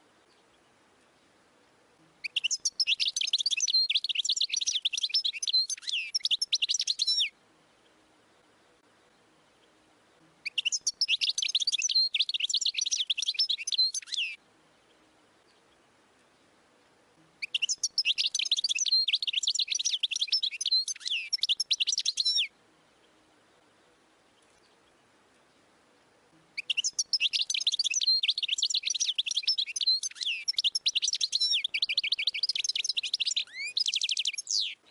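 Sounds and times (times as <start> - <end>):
goldfinch twittering song: 2.2 - 8.0, 10.4 - 16.6, 17.4 - 23.1, 26.6 - 34.9.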